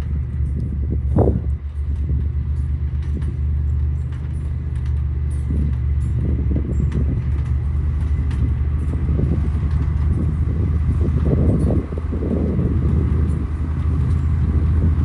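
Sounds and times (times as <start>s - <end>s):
diesel engine droning under load: 0.0s - 15.0s.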